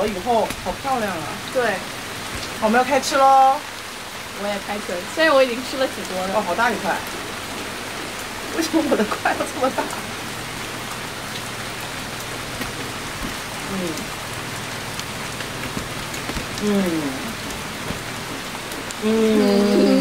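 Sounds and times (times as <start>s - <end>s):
rain falling: 0.0s - 20.0s
person humming while tasting: 13.6s - 14.1s, 16.6s - 17.4s, 19.0s - 20.0s.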